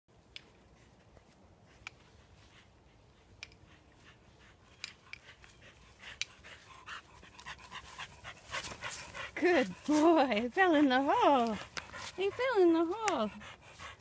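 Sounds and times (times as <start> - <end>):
dog panting: 0.7 - 14.0
footsteps on leafy dirt trail: 6.6 - 13.3.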